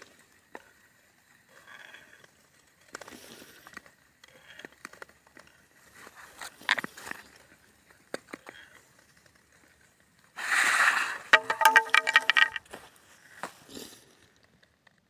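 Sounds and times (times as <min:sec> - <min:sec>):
skate blades scraping ice: 0:00.1 - 0:14.0
ice clicking and pinging: 0:11.2 - 0:12.6.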